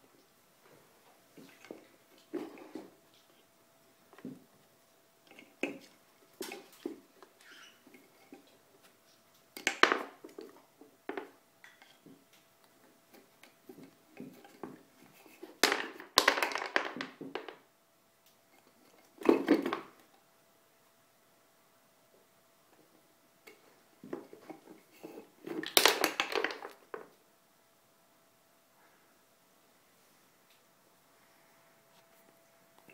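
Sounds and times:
plastic rings clattering on pegs: 9.5 - 12.1, 13.2 - 17.6, 24.4 - 27.1.

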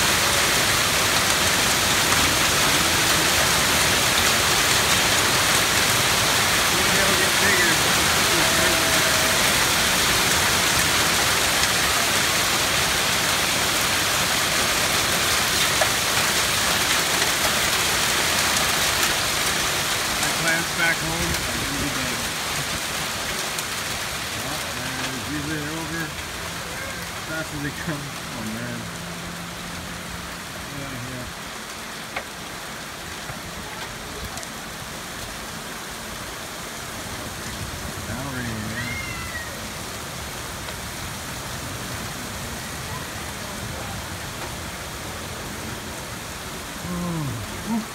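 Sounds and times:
hailstones ticking: 0.0 - 29.1, 29.8 - 37.7
hail and heavy rain: 0.0 - 47.9.

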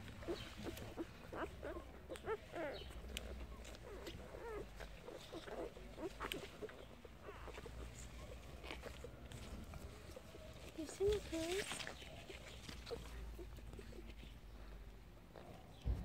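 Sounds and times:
puppies squeaking and whimpering: 0.0 - 14.4.

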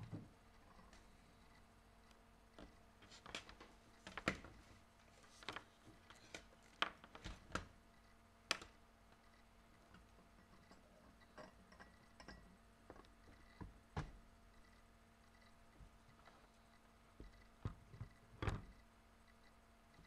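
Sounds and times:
faint steady hum: 0.0 - 20.0
clicks and knocks of small objects: 5.3 - 7.7.

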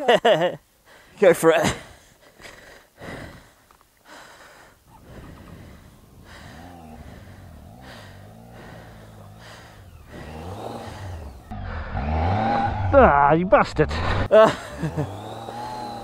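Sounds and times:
man breathing hard and gasping: 0.8 - 12.1
motorcycle engine revving: 4.9 - 16.0.

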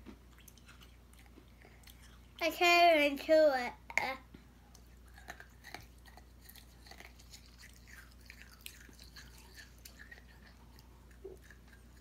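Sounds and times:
child crunching hard candy: 5.0 - 12.0.

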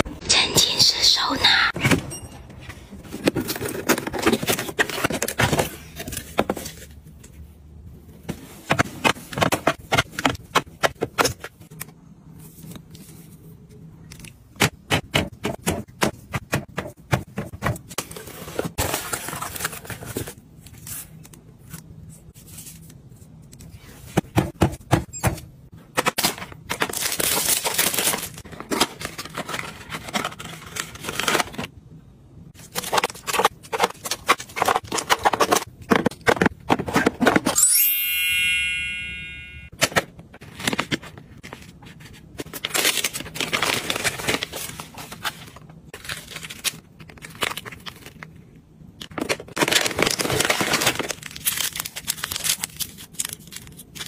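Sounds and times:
plastic packaging rustling: 26.2 - 31.7, 40.4 - 54.0.

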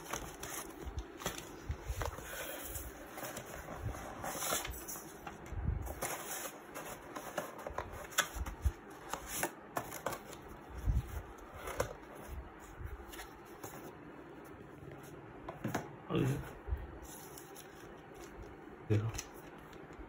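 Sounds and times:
cardboard rustling and scraping: 0.0 - 15.8.

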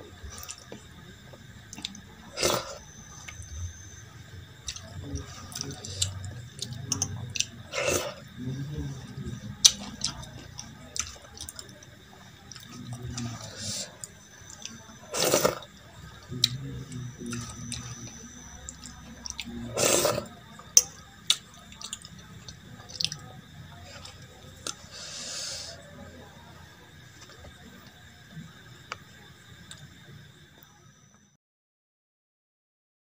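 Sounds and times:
chewing: 0.2 - 3.6, 4.6 - 25.8.

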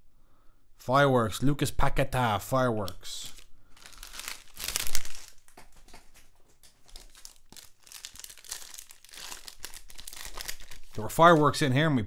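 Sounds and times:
cards rustling: 2.8 - 11.7
foil wrapper crinkling: 3.2 - 11.6.

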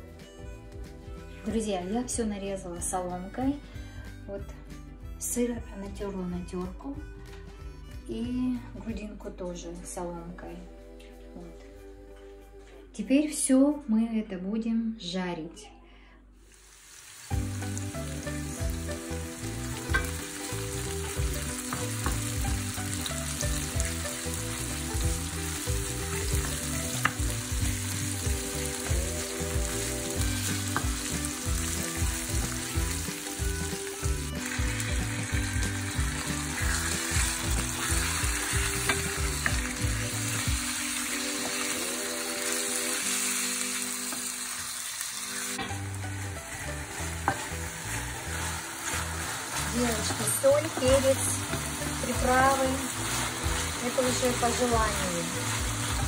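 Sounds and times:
onions sizzling in a pan: 16.4 - 56.0
wooden spoon scraping a pan: 45.6 - 56.0.

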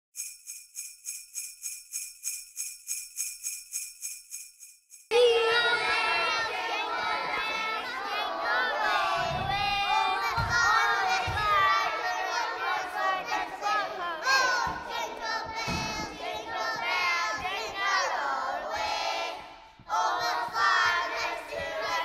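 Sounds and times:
young children calling and chattering: 5.1 - 16.2.

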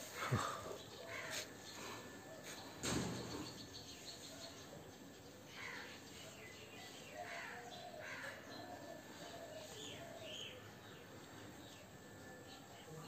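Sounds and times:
background hiss: 0.0 - 4.3.

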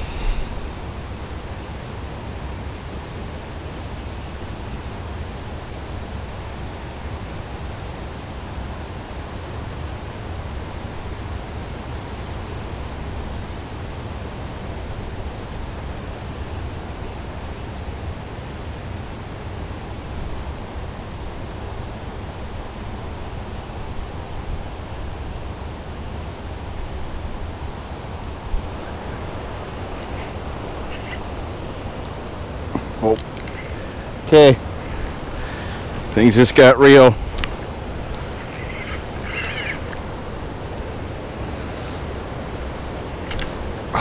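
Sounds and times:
outdoor background rumble: 0.0 - 3.1.

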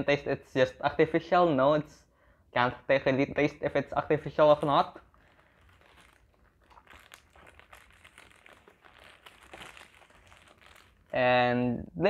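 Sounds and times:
paper wrapper crinkling: 4.3 - 11.4.

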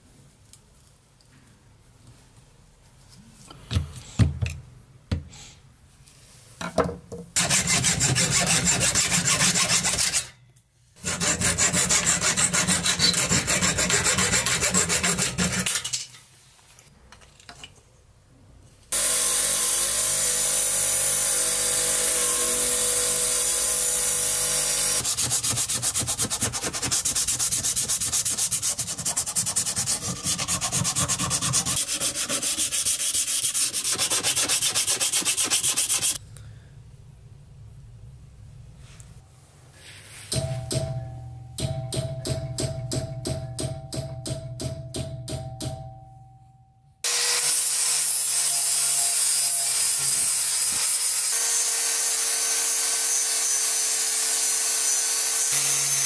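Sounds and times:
sandpaper scouring metal: 7.4 - 10.3, 11.0 - 15.9, 24.8 - 36.2.

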